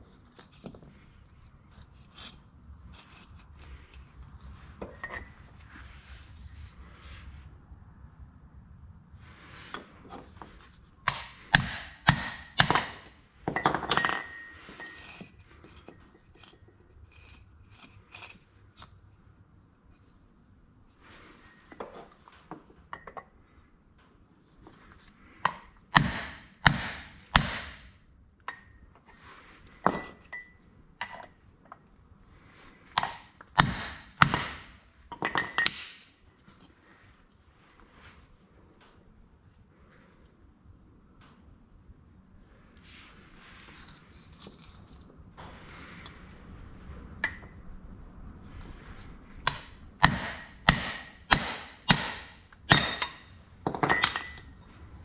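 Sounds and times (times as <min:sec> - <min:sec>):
hammer striking steel pipe: 0:11.1 - 0:13.1, 0:26.0 - 0:27.9, 0:49.5 - 0:53.2.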